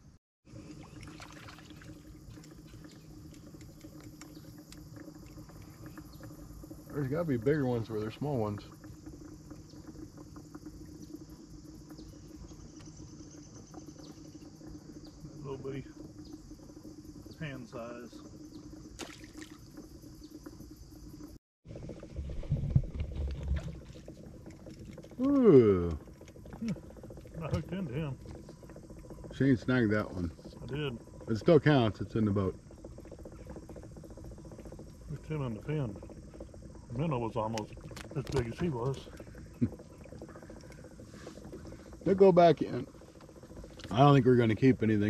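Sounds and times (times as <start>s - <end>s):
faint steady hum: 0.0s - 45.0s
insects chirring: 0.0s - 45.0s
light water patter: 0.5s - 45.0s
fish splashing into water: 0.7s - 2.5s, 19.0s - 19.7s
small ticks: 0.8s - 21.4s, 22.9s - 45.0s
low bumping and rumbling: 21.7s - 45.0s.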